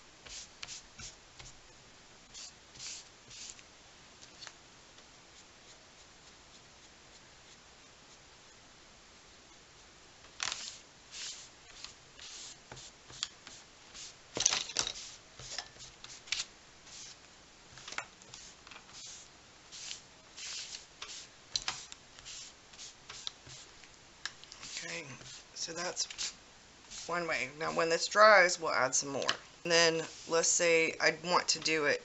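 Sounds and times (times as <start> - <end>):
wipe rubbing on paper: 10.6 - 14.2, 18.3 - 23.7, 24.6 - 27.3, 30.0 - 30.5.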